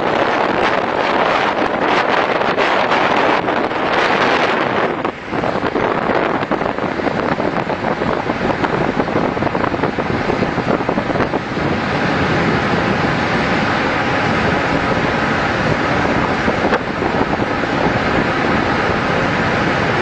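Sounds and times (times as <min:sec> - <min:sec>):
sea rushing: 0:00.0 - 0:20.0
wind buffeting microphone: 0:00.0 - 0:20.0.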